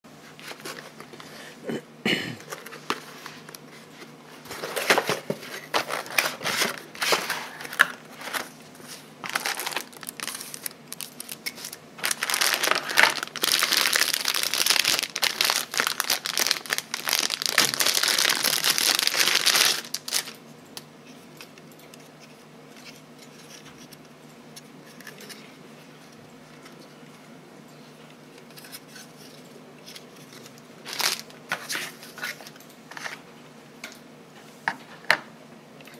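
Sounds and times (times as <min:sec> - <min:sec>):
plastic bag crinkling: 0:09.2 - 0:20.4, 0:30.8 - 0:31.4.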